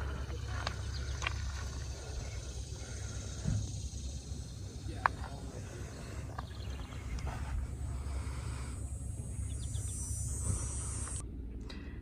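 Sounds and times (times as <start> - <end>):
steady low rumble: 0.0 - 12.0.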